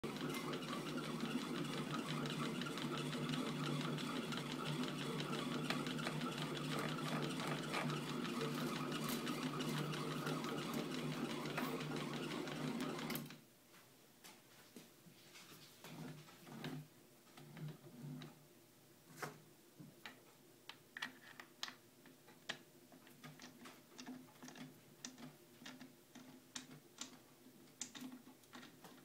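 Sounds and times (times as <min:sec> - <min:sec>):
lathe motor humming: 0:00.0 - 0:13.2.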